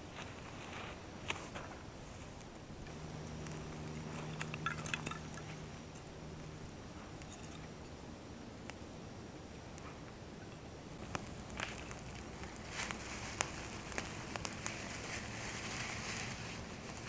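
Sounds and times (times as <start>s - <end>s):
low steady hum: 0.0s - 17.0s
small fire crackling: 0.0s - 17.0s
twigs snapping and clicking: 2.4s - 5.6s, 11.0s - 15.6s.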